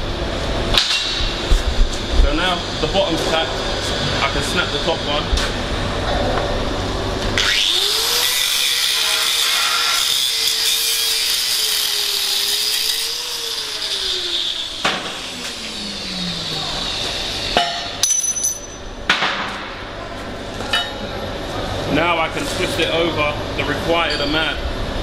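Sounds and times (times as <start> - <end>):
angle grinder grinding steel: 7.4 - 17.6.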